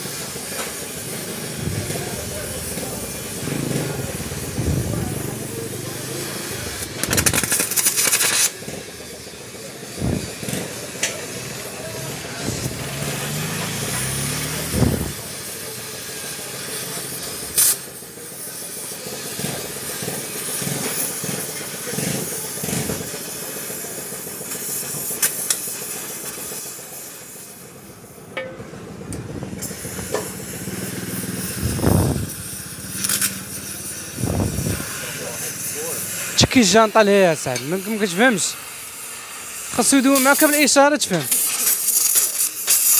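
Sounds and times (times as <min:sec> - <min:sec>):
gas torch flame hissing: 0:00.0 - 0:28.3, 0:29.1 - 0:42.9
sharp knocks: 0:28.4 - 0:29.2.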